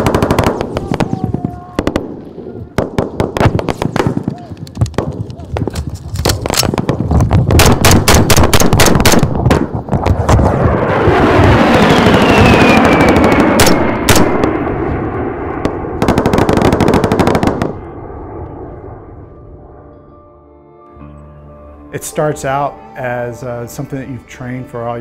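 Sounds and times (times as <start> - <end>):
rapid gunfire: 0.0 - 0.8, 6.6 - 9.7, 12.2 - 14.4, 16.0 - 17.8
jet aircraft passing overhead: 9.8 - 21.8.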